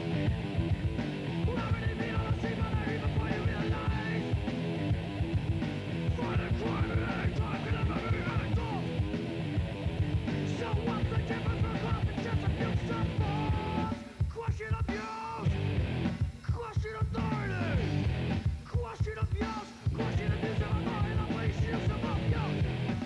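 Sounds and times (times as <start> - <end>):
drums: 0.0 - 23.0
punk rock song: 0.0 - 23.0
shouted vocals: 6.2 - 9.0, 10.5 - 14.0.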